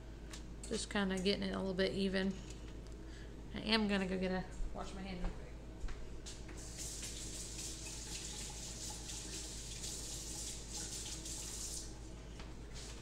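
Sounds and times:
tap water running over hands: 6.6 - 11.9.

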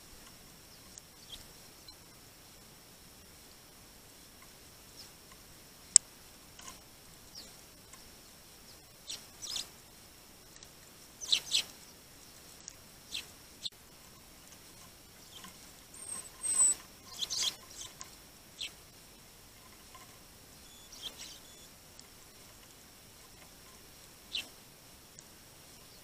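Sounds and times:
sparrows chirping: 0.6 - 2.0, 7.2 - 9.8, 11.2 - 12.5, 13.1 - 13.8, 15.1 - 18.9, 20.6 - 22.4, 24.3 - 24.6
thin high whistle: 15.9 - 16.8.

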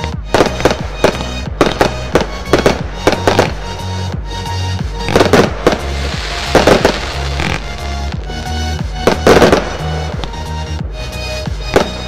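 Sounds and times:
fireworks bangs: 0.0 - 4.0, 4.8 - 10.5, 11.4 - 12.0.

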